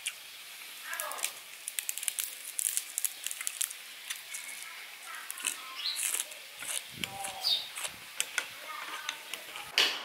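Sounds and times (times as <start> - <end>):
faint sizzle: 0.0 - 9.8
oil crackling and popping: 0.0 - 9.8.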